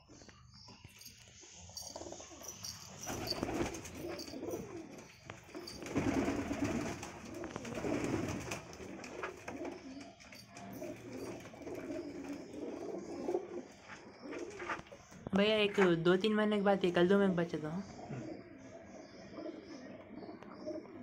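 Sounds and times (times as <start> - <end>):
pigeons cooing: 1.8 - 15.2, 17.8 - 21.0.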